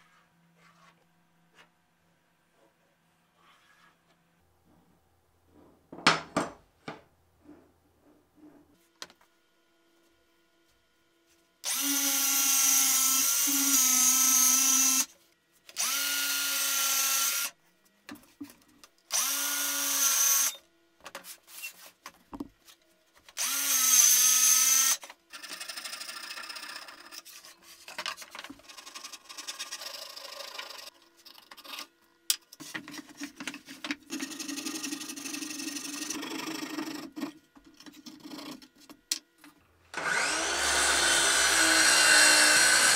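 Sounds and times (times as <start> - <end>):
circular saw cutting plywood: 28.6 - 30.9, 39.9 - 42.9.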